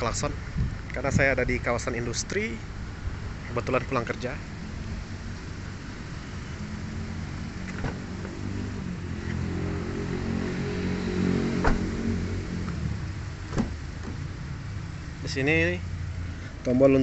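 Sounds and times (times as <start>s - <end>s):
street traffic: 0.0s - 17.0s
passing vehicle engine: 4.4s - 17.0s.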